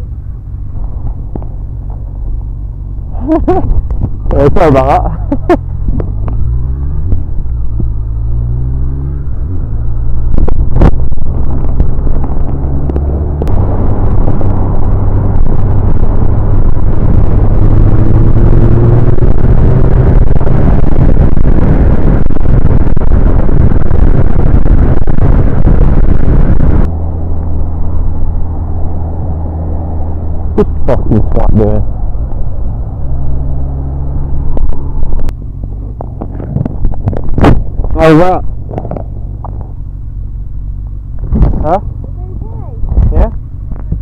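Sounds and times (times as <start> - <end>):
motorcycle engine accelerating: 0.0 - 44.0
wind noise on microphone: 0.0 - 44.0.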